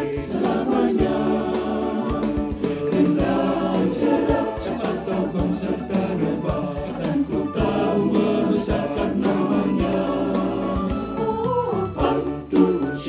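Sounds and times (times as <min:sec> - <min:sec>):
low percussive beat: 0:00.0 - 0:11.3
backing instruments: 0:00.0 - 0:13.0
choir singing a hymn: 0:00.0 - 0:13.0.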